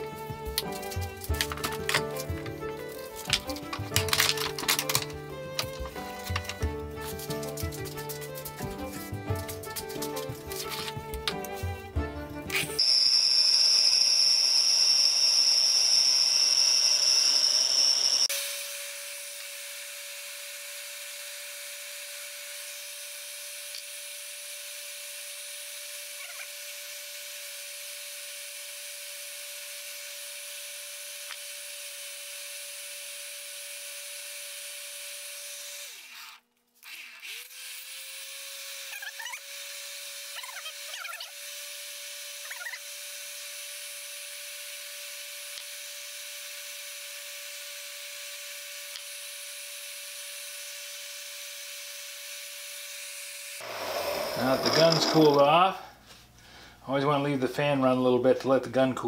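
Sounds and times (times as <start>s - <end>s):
heat gun fan and motor: 12.6s - 55.6s.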